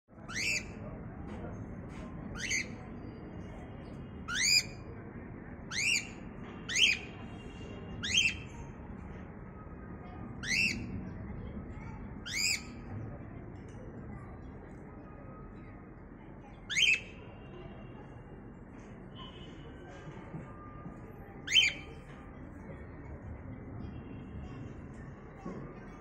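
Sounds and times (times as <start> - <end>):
low background noise: 0.1 - 26.0
cockatiels calling: 0.3 - 0.7, 2.4 - 2.8, 4.3 - 4.8, 5.7 - 7.1, 8.0 - 8.4, 10.4 - 10.9, 12.3 - 12.7, 16.7 - 17.0, 21.5 - 21.8.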